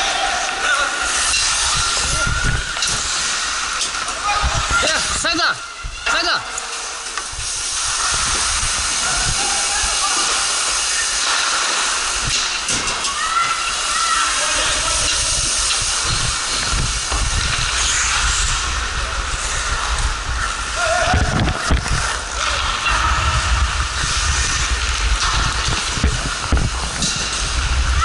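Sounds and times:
skates hissing on ice: 0:00.0 - 0:28.0
low thumps and rumbling: 0:14.8 - 0:28.0.

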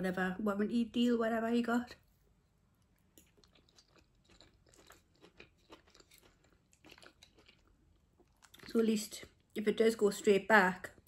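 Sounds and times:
close-up chewing: 0:02.8 - 0:09.6.

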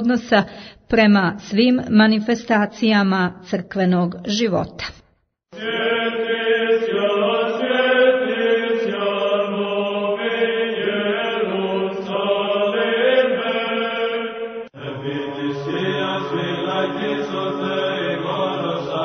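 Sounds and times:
voices chanting: 0:05.6 - 0:19.0
held drone note: 0:14.8 - 0:19.0.

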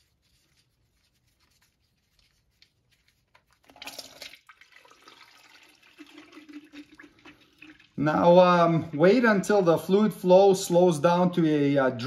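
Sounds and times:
fluid gushing into pan: 0:03.6 - 0:08.0.

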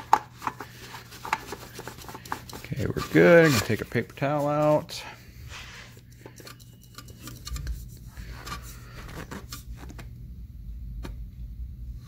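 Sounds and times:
oil filter clicks and rubbing: 0:00.0 - 0:04.5, 0:05.9 - 0:09.6
low steady hum: 0:00.0 - 0:12.0.

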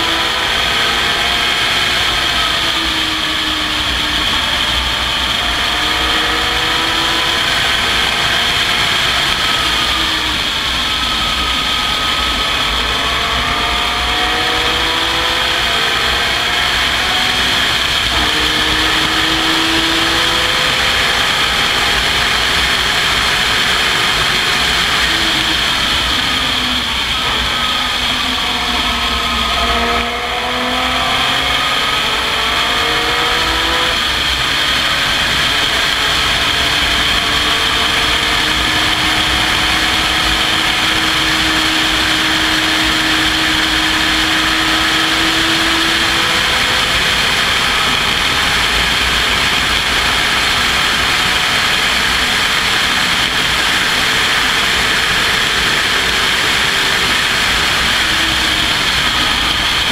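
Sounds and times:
race car engine: 0:00.0 - 0:59.9
wind rush: 0:01.3 - 0:59.9.

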